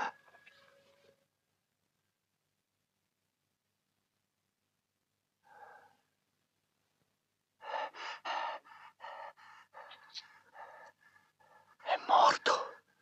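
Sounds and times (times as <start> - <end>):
person panting gasps: 7.6 - 11.8.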